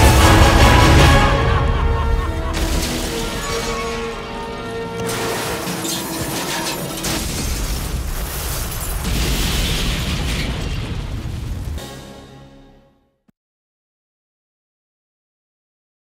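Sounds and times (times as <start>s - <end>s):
metal wreck crashing and exploding: 2.4s - 12.1s.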